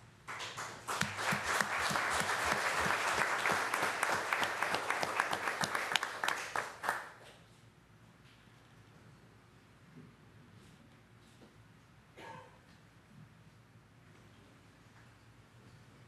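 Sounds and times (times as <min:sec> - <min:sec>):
group applause: 0:00.3 - 0:07.2.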